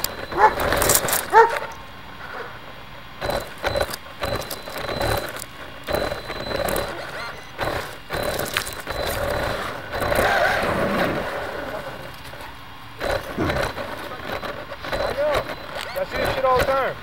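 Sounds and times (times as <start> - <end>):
toy car knocks and rattles: 0.0 - 1.4, 3.2 - 10.4
electric motor whining in bursts: 0.0 - 17.0.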